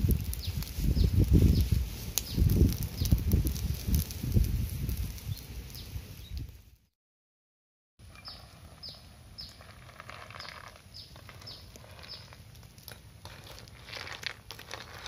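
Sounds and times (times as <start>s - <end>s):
bird chirping: 8.1s - 12.4s.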